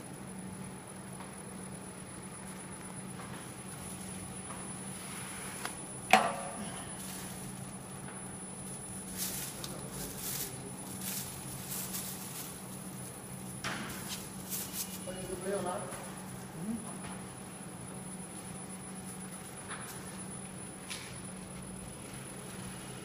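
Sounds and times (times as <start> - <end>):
paper and foil crackling: 6.9 - 8.0, 8.6 - 15.8, 19.0 - 23.0.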